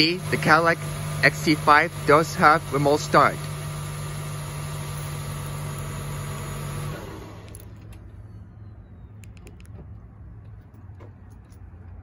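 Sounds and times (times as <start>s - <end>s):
car engine idling: 0.0s - 8.3s.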